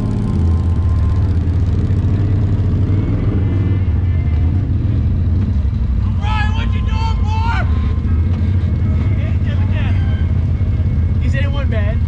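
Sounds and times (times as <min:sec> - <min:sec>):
vehicle engine droning: 0:00.0 - 0:12.0.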